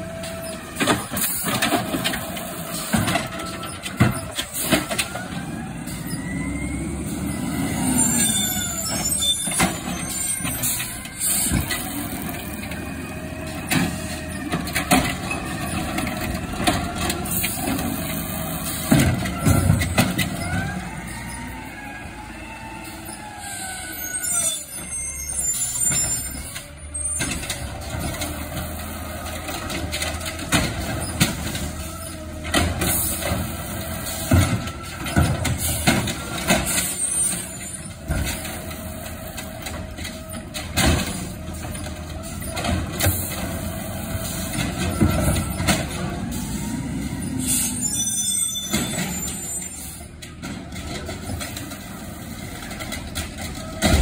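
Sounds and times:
hydraulic arm and carts banging: 0:00.0 - 0:54.0.

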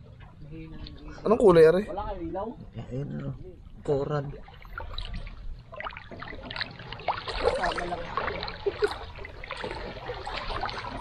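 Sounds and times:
seawater sloshing from wading: 0:03.6 - 0:11.0.

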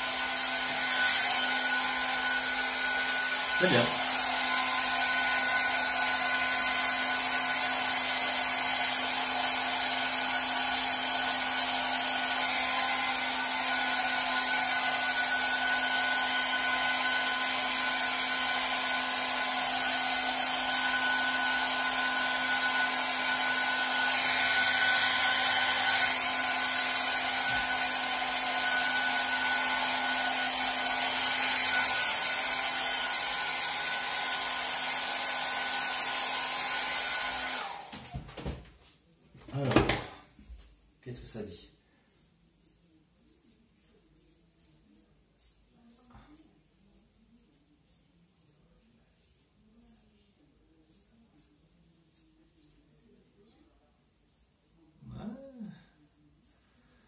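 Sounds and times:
hair dryer running: 0:00.0 - 0:38.6.

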